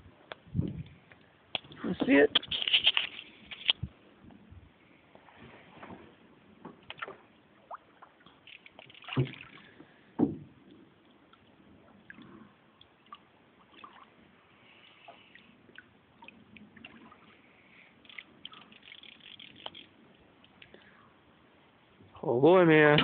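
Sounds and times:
water splashing and dripping: 6.8 - 10.0, 10.6 - 14.3, 15.0 - 20.8
small clicks: 18.0 - 20.9.

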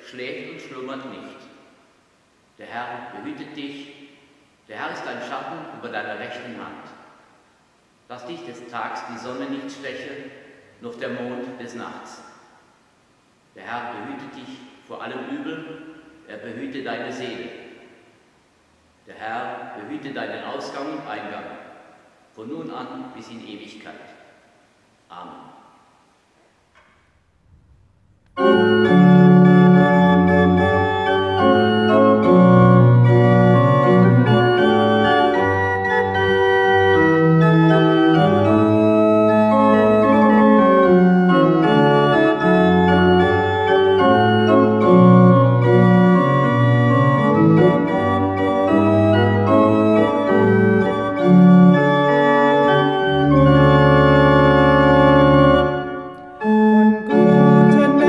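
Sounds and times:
pipe organ playing chords: 27.4 - 58.0.

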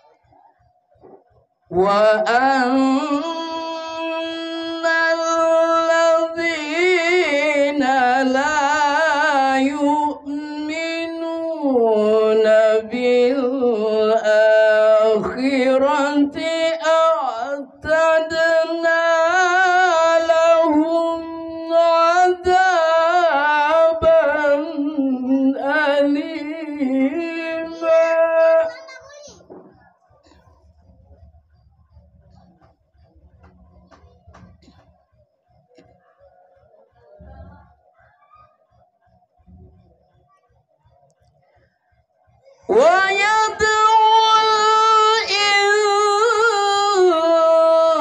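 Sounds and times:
man reciting melodically into microphone: 1.7 - 29.0, 42.5 - 48.0.

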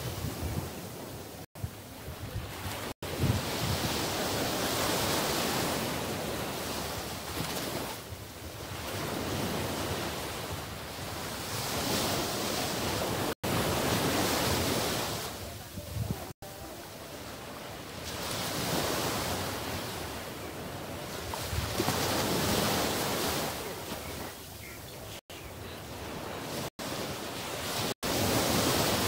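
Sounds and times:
wind buffeting microphone: 0.0 - 16.3, 20.7 - 25.1
small waves breaking on sand: 0.0 - 24.5, 25.8 - 29.0.

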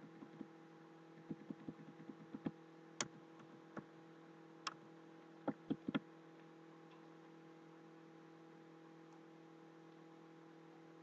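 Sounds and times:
steady electrical hum: 0.0 - 11.0
computer keyboard and mouse clicking: 1.2 - 3.9, 5.5 - 6.0.

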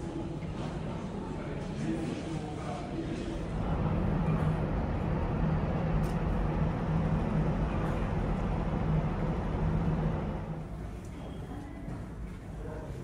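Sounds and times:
ship engines humming: 3.4 - 11.0.

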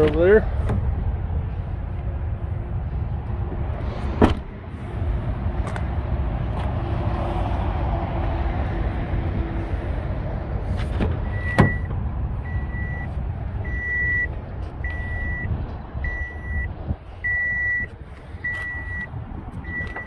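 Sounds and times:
traffic rumble: 0.0 - 20.0
wind: 0.0 - 20.0
door-open warning beeps: 11.2 - 11.9, 12.5 - 13.1, 13.7 - 15.5, 16.1 - 16.7, 17.3 - 17.9, 18.5 - 19.1, 19.7 - 20.0.

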